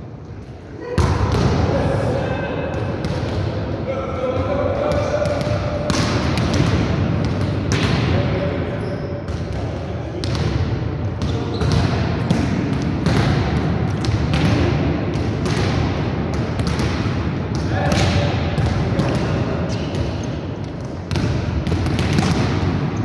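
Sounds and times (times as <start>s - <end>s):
volleyballs slapping and thudding: 4.3s - 8.2s, 9.2s - 23.0s.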